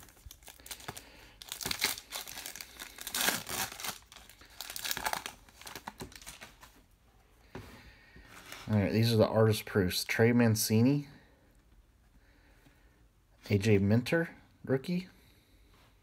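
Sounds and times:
foil wrapper crinkling and tearing: 0:00.0 - 0:06.7.

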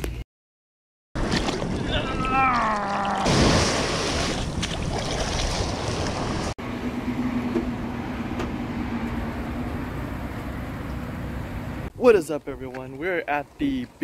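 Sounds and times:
steady low hum: 0:06.6 - 0:12.2.

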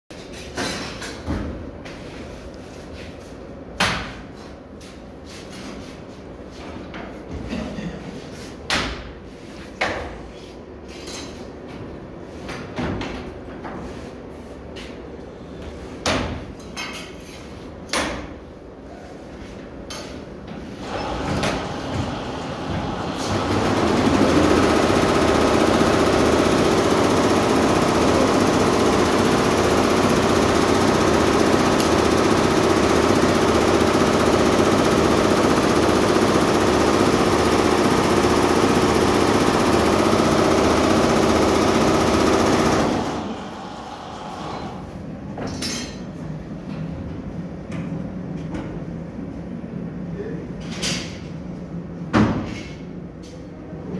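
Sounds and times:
sharp machine clicks and knocks: 0:23.3 - 0:43.2.

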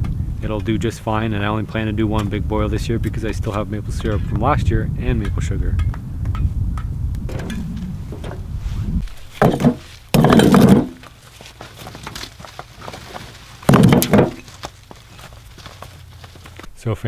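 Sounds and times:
bricks clunking into wheelbarrow: 0:09.1 - 0:15.9.

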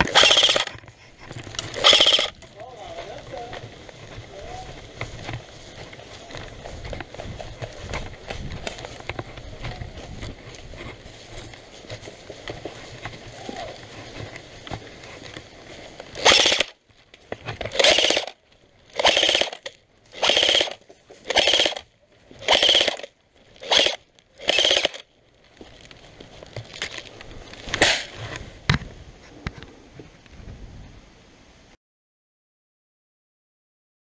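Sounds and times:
airsoft rifle full-auto bursts: 0:00.0 - 0:00.8, 0:01.7 - 0:02.4, 0:16.2 - 0:16.8, 0:17.7 - 0:25.0.

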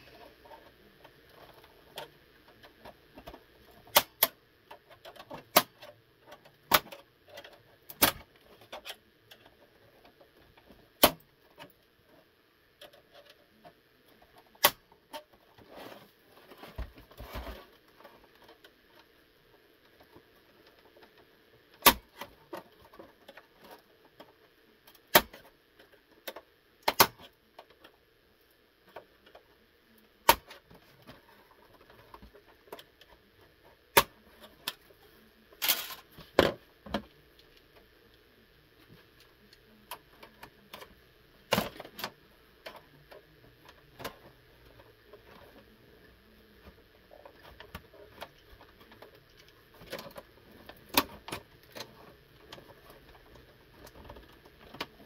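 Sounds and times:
plastic clicks and snaps: 0:03.2 - 0:04.4, 0:14.6 - 0:15.3, 0:26.2 - 0:27.8
soft scraping rustle: 0:15.1 - 0:21.6.

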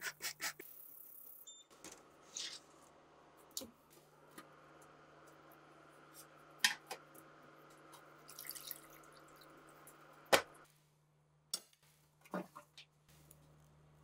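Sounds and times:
water dripping and splashing: 0:08.3 - 0:09.5.

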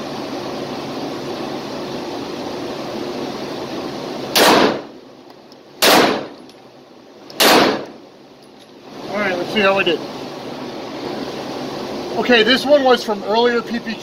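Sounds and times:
pistol shots echoing indoors: 0:04.4 - 0:04.8, 0:05.8 - 0:06.4, 0:07.4 - 0:07.9.

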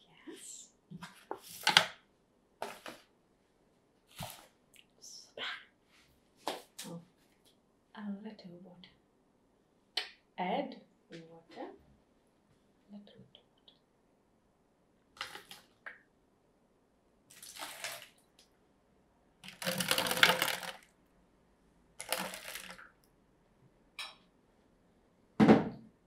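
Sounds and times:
water splashing onto foil trays: 0:15.2 - 0:15.9, 0:17.3 - 0:18.5, 0:19.4 - 0:21.0, 0:22.0 - 0:23.0.

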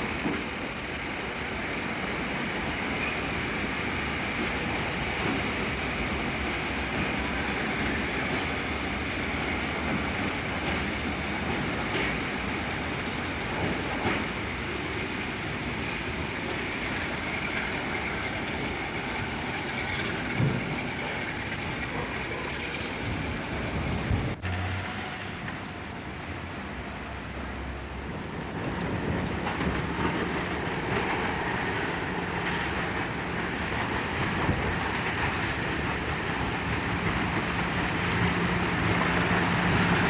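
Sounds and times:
wheel squeal: 0:00.0 - 0:04.6, 0:11.7 - 0:14.4
freight train rolling past: 0:00.0 - 0:40.0
wheels clacking over rail joints: 0:04.1 - 0:25.8, 0:27.9 - 0:40.0.

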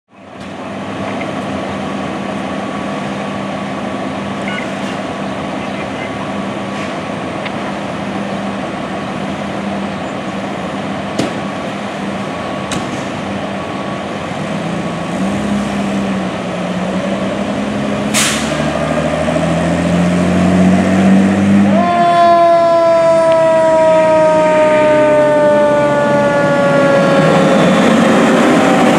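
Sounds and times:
diesel engines idling: 0:00.2 - 0:28.9
air brake hiss: 0:18.1 - 0:18.6.

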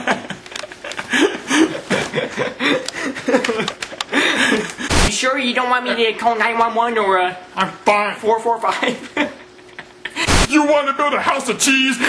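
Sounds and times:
people giggling: 0:00.0 - 0:04.9, 0:08.7 - 0:10.4
static hiss: 0:04.8 - 0:05.3, 0:10.0 - 0:10.7.

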